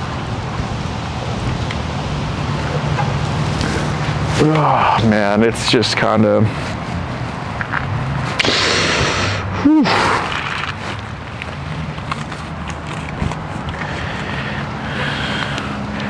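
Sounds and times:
short falling vocal sound: 8.4 - 10.4
wind noise on microphone: 12.4 - 13.8.

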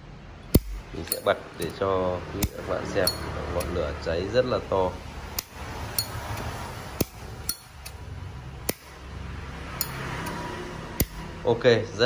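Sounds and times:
metal lighter clicks and clinks: 0.5 - 1.8, 2.4 - 3.8, 5.3 - 8.0, 9.8 - 10.4.

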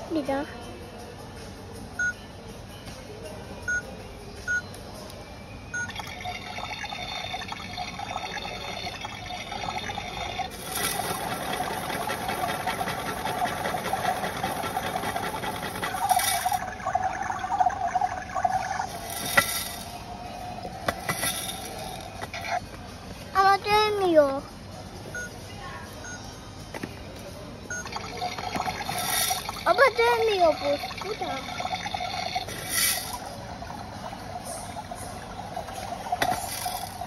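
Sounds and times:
toy beeping: 5.8 - 20.0, 27.7 - 33.3
watery running sound effect: 10.5 - 19.8.

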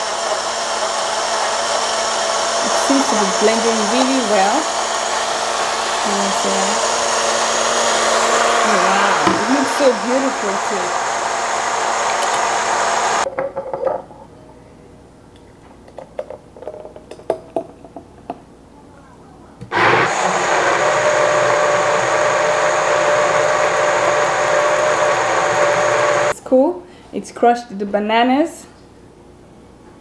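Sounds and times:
blender motor whining: 0.0 - 13.3, 19.7 - 26.3.

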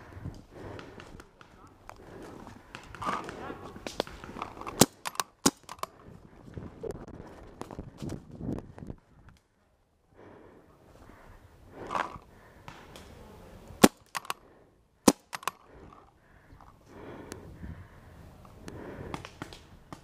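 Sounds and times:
paintball marker shots: 2.7 - 5.9, 13.8 - 14.4, 15.1 - 15.7.

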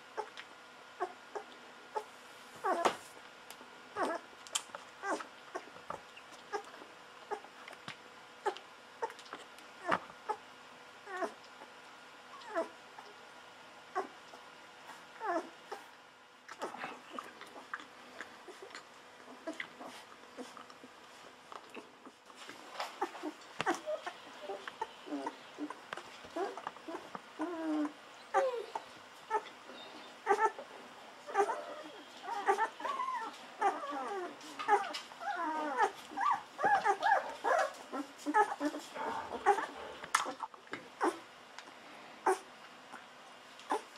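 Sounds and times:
puppy squeaking: 26.4 - 30.6, 31.3 - 38.8.

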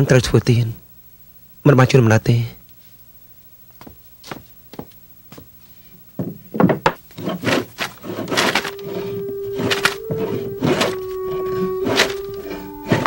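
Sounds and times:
hand plane rasping over wood: 7.1 - 13.0.

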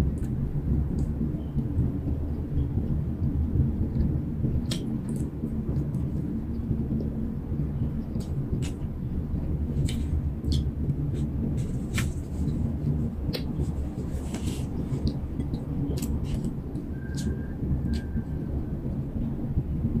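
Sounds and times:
steady low rumble: 0.0 - 20.0
person chewing: 9.8 - 18.1.

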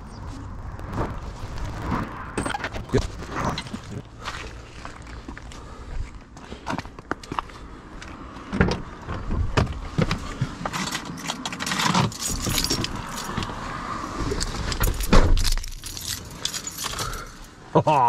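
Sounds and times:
keys jangling: 10.8 - 13.5, 14.4 - 17.5.

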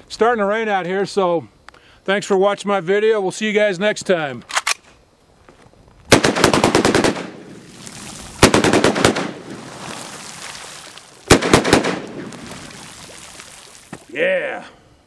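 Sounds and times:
pistol gunshots: 6.1 - 7.5, 8.4 - 9.5, 11.3 - 12.3
gunshot echo rolling: 8.4 - 9.5, 11.3 - 12.4.

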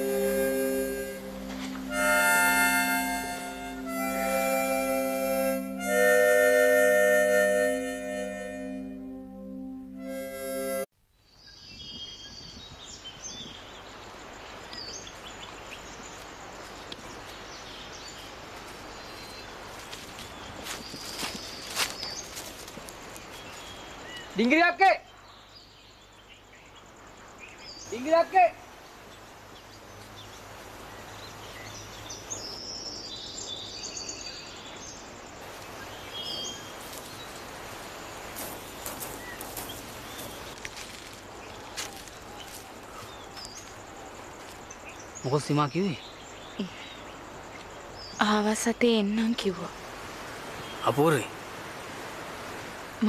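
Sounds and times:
birds chirping: 0.0 - 10.8, 35.6 - 49.7, 50.4 - 51.3
background hiss: 0.0 - 53.0
twigs and leaves crackling: 19.7 - 23.6, 38.3 - 44.7.

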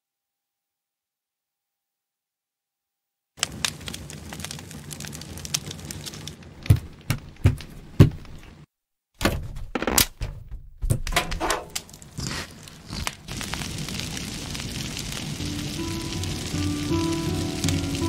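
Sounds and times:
light clicks and crackles: 3.4 - 7.7.

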